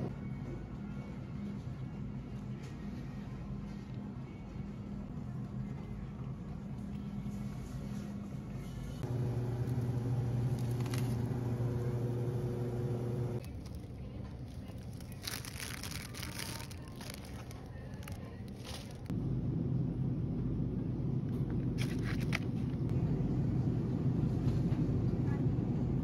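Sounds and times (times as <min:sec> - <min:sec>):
refrigeration and ventilation hum: 0:00.0 - 0:26.0
plastic packaging crinkling: 0:10.4 - 0:11.3, 0:13.4 - 0:19.1, 0:21.8 - 0:22.5.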